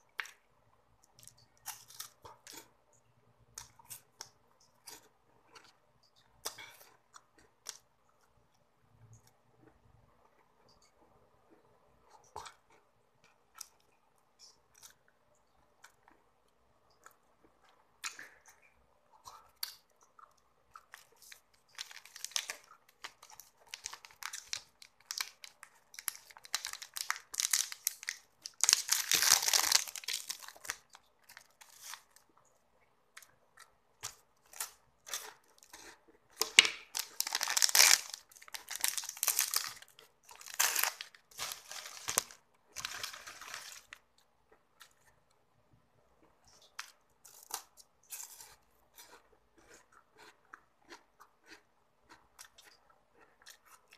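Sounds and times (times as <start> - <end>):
plastic wrapper crinkling and tearing: 20.9 - 32.2, 36.4 - 44.0.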